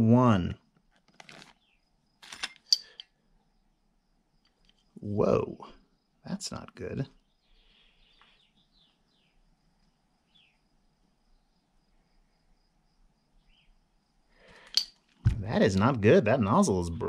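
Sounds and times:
handling noise: 0:00.8 - 0:03.0, 0:14.6 - 0:16.0.

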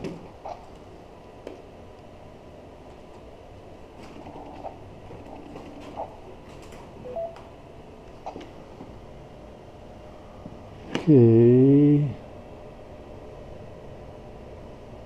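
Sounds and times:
low background hum: 0:00.0 - 0:15.0
short beeps: 0:07.0 - 0:07.4.

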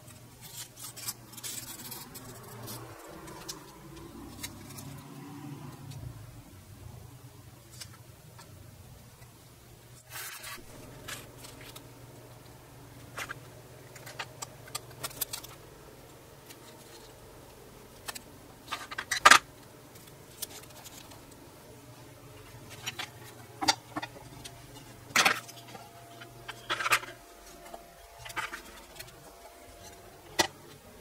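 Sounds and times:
low steady hum: 0:00.0 - 0:31.0
tape rubbing and ripping: 0:00.4 - 0:05.5.

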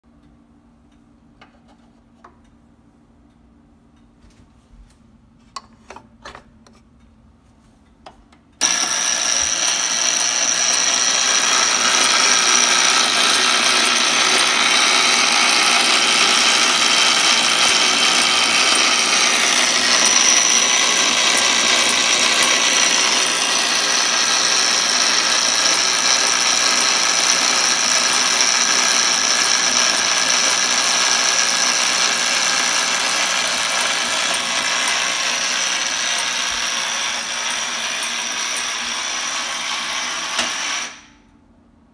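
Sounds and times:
clockwork mechanism whirring: 0:08.6 - 0:41.2.

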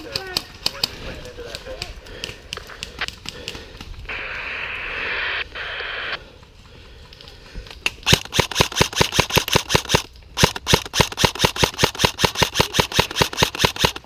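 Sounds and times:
airsoft rifle shots clicking: 0:07.8 - 0:14.0.

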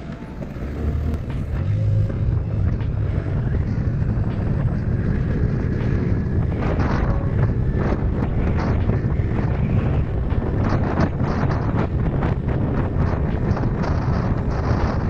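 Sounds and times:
scooter engine running: 0:00.0 - 0:11.8
wind rumbling on microphone: 0:00.0 - 0:15.0.

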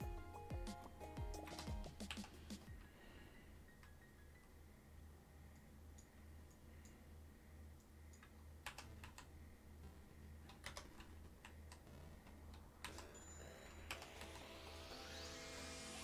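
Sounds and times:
low electrical hum: 0:02.7 - 0:16.0
computer keyboard keystrokes: 0:08.2 - 0:09.3, 0:10.5 - 0:11.9.

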